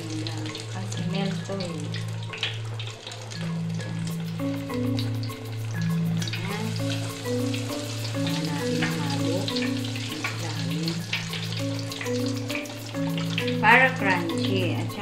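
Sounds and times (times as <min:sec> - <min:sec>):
chicken sizzling in deep fryer: 0:00.0 - 0:15.0
background music with bass line: 0:03.3 - 0:15.0.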